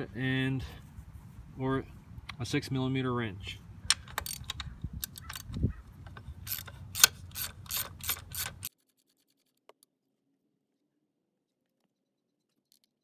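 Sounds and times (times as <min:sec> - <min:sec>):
socket ratchet clicking: 0:03.8 - 0:08.7.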